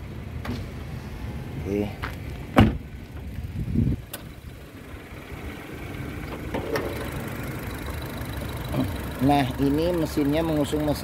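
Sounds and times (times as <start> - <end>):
low steady rumble: 0.0 - 11.0
car bonnet thump: 2.5 - 2.8.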